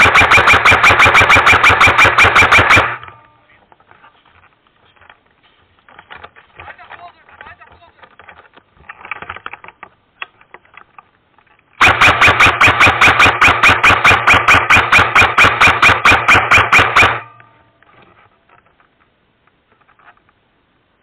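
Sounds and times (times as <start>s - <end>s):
rapid sharp bangs: 0.0s - 3.2s, 11.8s - 17.4s.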